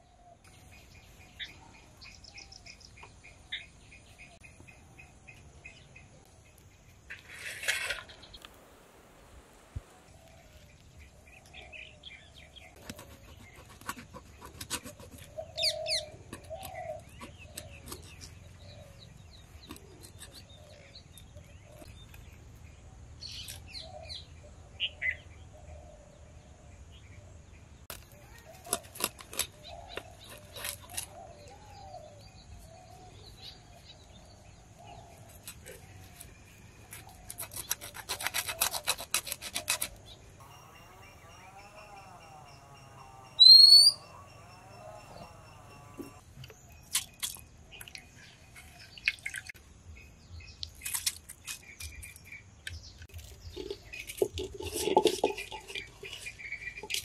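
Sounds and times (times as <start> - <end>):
birds chirping: 9.5 - 26.2, 39.6 - 57.0
knife scraping fish scales: 36.9 - 40.0.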